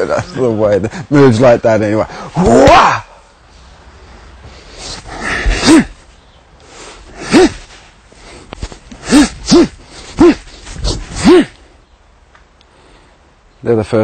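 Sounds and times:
man shouting hah: 0:05.4 - 0:06.0, 0:07.2 - 0:07.7, 0:09.0 - 0:10.6, 0:11.2 - 0:11.6.

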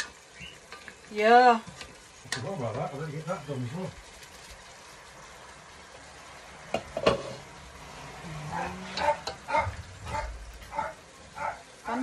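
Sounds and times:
food sizzling in a pot: 0:00.0 - 0:12.0
dog barking: 0:09.0 - 0:11.7.

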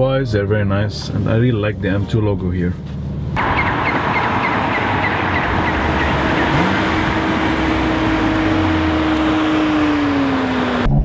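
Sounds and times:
road and wind noise: 0:01.8 - 0:10.9
car engine driving: 0:02.8 - 0:11.0.

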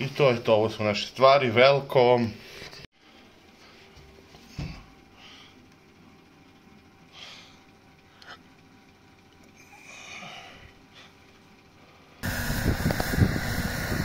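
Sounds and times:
wind buffeting microphone: 0:12.2 - 0:14.0.

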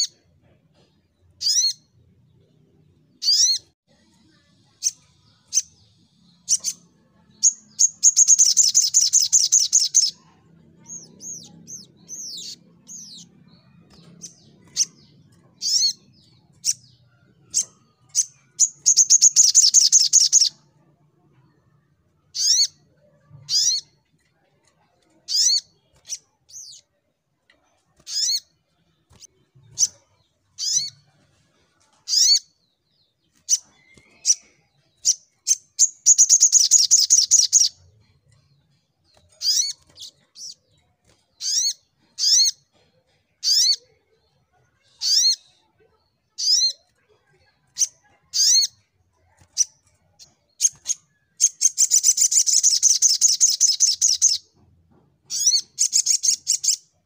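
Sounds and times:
bird chirping: 0:00.0 - 0:57.0
bird trilling: 0:01.4 - 0:01.9, 0:03.2 - 0:03.7, 0:22.4 - 0:22.8.

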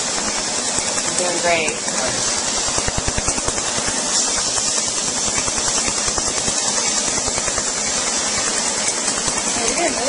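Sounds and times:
laser firing rapid snaps: 0:00.0 - 0:10.0
steady hiss: 0:00.0 - 0:10.0.

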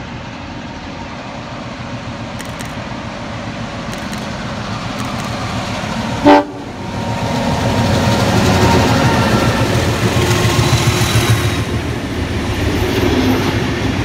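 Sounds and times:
locomotive engine and wheels: 0:00.0 - 0:14.0
short train horn toot: 0:06.2 - 0:06.7.

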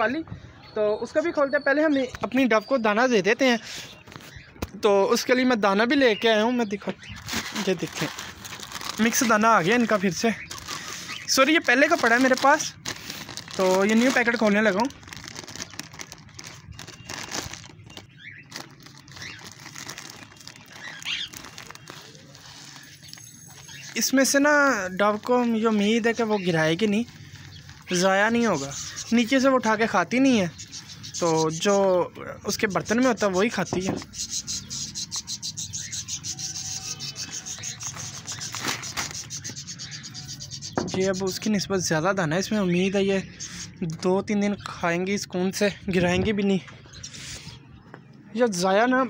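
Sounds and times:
plastic bag crinkling: 0:07.0 - 0:24.4, 0:37.3 - 0:39.5.

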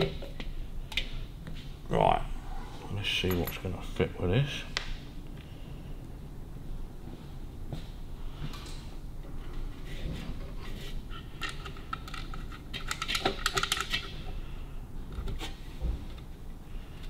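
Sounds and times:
small metal parts clicking: 0:11.4 - 0:14.1.

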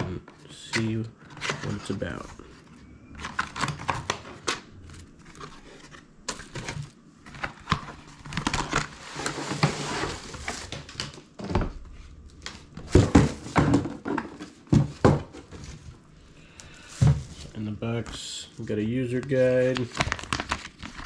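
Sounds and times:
packaging rustling and crinkling: 0:01.3 - 0:11.3, 0:19.1 - 0:21.0.

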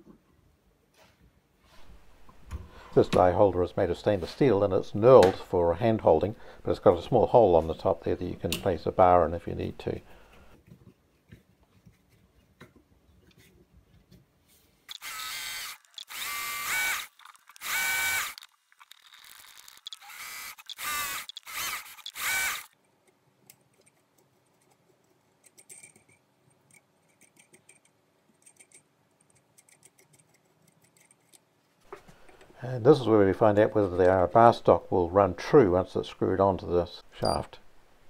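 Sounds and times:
lathe motor whining: 0:14.9 - 0:18.5, 0:19.2 - 0:22.7.

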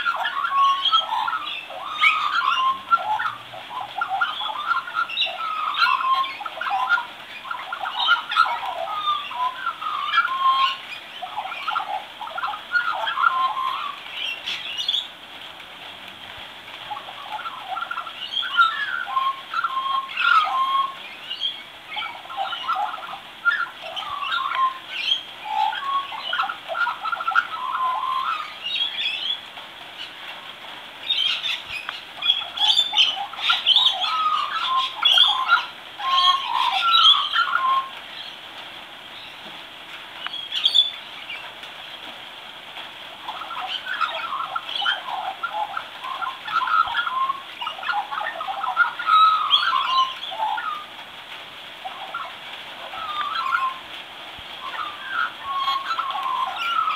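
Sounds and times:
magpie warbling: 0:00.0 - 0:15.0, 0:32.2 - 0:37.9, 0:43.2 - 0:50.9.

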